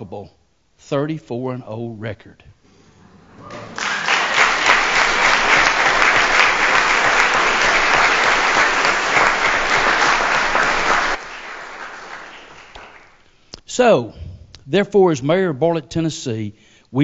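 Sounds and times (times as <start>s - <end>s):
people applauding: 3.0s - 13.2s.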